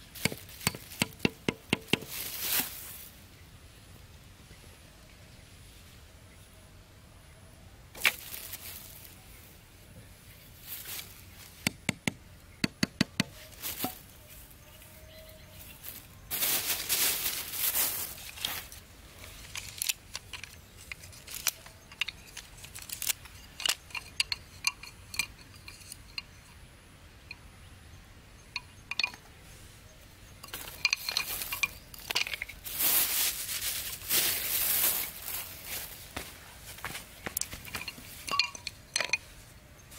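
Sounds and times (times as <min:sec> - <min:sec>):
rustling and scraping: 0:00.0 - 0:03.2, 0:08.0 - 0:09.3, 0:10.5 - 0:11.7, 0:13.3 - 0:26.5, 0:30.3 - 0:39.6
bamboo sticks clicking together: 0:19.2 - 0:25.4.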